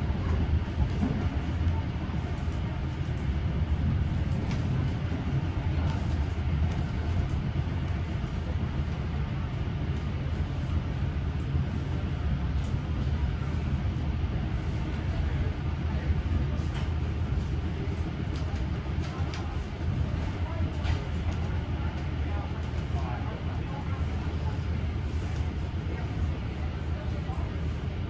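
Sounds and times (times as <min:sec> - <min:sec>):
train carriage rumbling on rails: 0:00.0 - 0:28.0.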